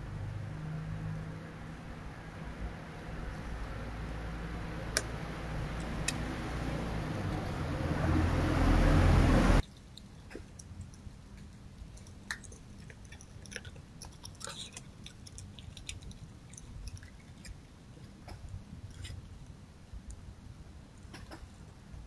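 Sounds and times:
faint low hum: 0:00.0 - 0:22.0
fox chewing food: 0:09.6 - 0:21.7.

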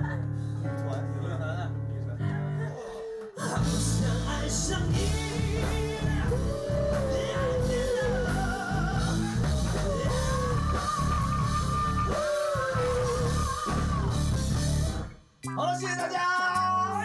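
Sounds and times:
group singing pop-rock song: 0:03.4 - 0:15.0
band accompaniment: 0:03.6 - 0:15.3.

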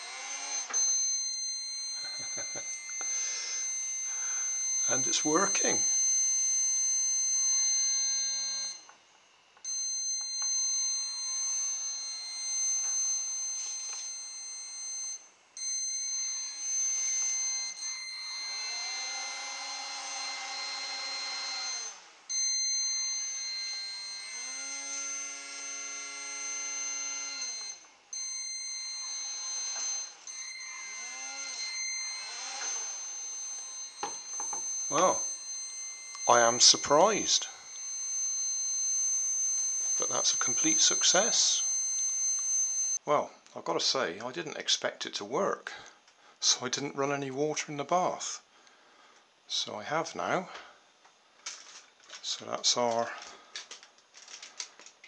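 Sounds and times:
small motor whine: 0:00.0 - 0:09.0, 0:09.7 - 0:14.8, 0:15.7 - 0:43.0
speed controller high-pitched whine: 0:00.0 - 0:43.1.

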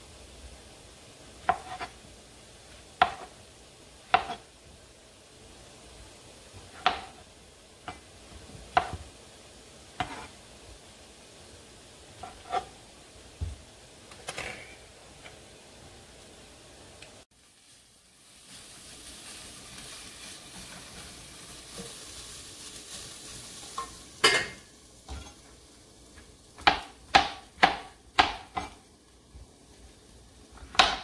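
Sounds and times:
knife slicing mushrooms: 0:01.4 - 0:02.0, 0:03.0 - 0:03.4, 0:04.1 - 0:04.5, 0:06.7 - 0:07.2, 0:10.0 - 0:10.4, 0:12.2 - 0:12.8, 0:26.6 - 0:28.8.

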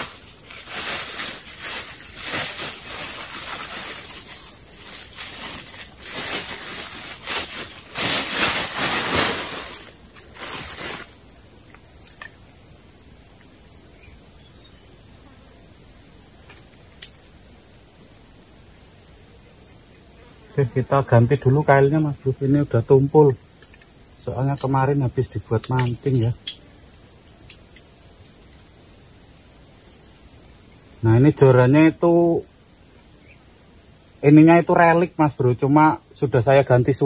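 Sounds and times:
plastic bag rustling: 0:00.0 - 0:11.4
high-pitched insect drone: 0:00.0 - 0:37.0.

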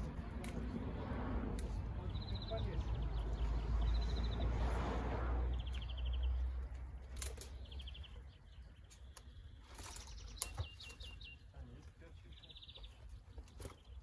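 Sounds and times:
low rumble: 0:00.0 - 0:07.0.

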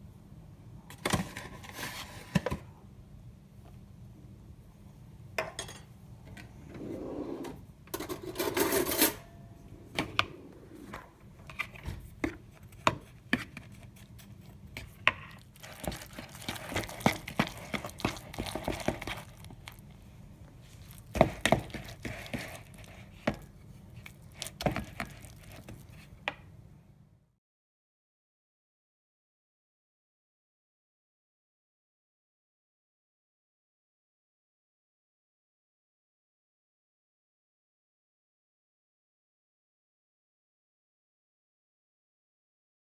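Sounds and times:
rustling: 0:13.7 - 0:26.2
fork scraping a plastic bowl: 0:20.7 - 0:26.1.

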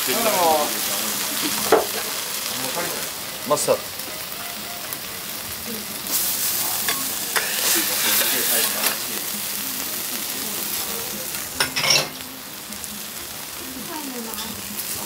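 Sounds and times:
food sizzling on a griddle: 0:00.0 - 0:15.0
metal spatula scraping griddle: 0:06.1 - 0:09.1.

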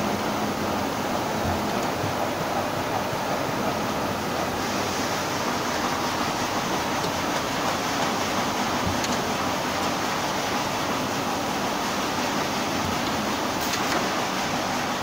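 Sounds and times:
hot-air blower rushing: 0:00.0 - 0:15.0.

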